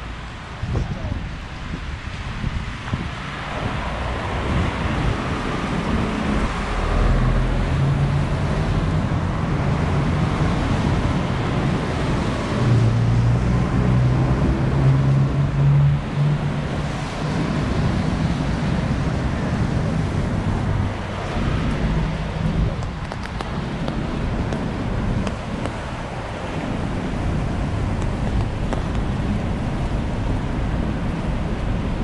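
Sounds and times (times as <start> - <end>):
rain: 0.0 - 32.0
tyres hissing on wet road: 0.0 - 32.0
vehicle engine hum: 0.0 - 32.0.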